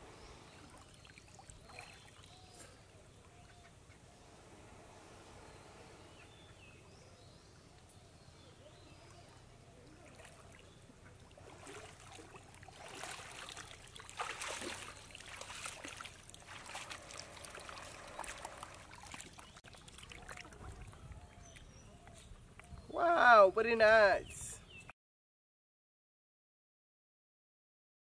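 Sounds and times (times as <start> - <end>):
water splashing from wading: 0.5 - 2.5, 9.8 - 22.2.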